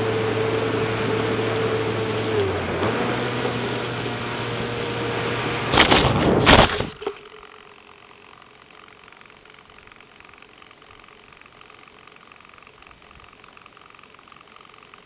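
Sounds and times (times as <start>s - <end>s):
electric motor and propeller: 0.0s - 15.0s
plane crashing into snow: 5.5s - 7.2s.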